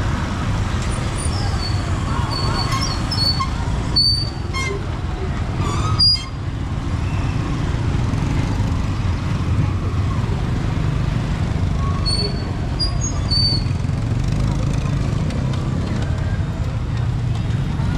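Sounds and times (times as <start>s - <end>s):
motorbikes passing close by: 12.6s - 17.9s.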